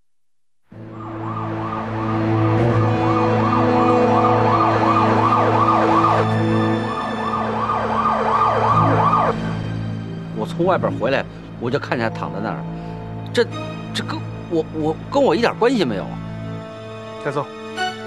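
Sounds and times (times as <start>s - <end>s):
police siren yelping: 0.8s - 9.5s.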